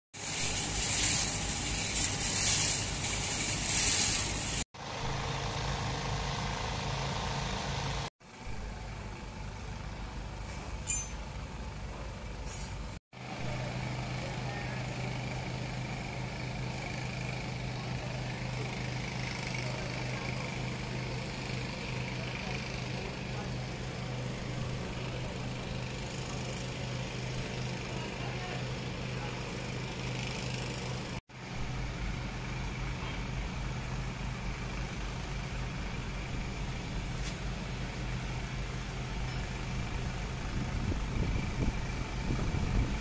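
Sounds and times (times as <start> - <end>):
pulsing rushing hiss: 0.2 - 4.6
machinery engine humming: 0.2 - 43.0.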